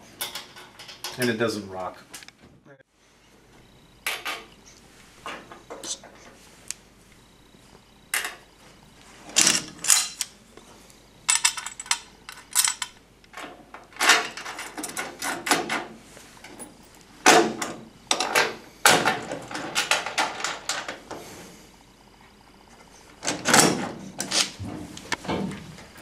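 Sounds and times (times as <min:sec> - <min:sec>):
metal washers clinking: 0:11.3 - 0:13.0.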